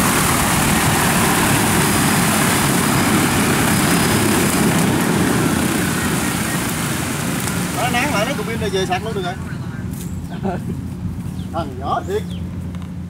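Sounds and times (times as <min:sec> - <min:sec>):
drone rotors whirring: 0:00.0 - 0:09.2.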